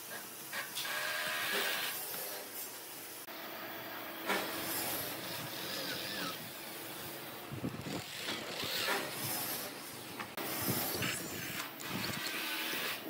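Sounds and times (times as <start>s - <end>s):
electric drill boring into wood: 10.7s - 13.0s.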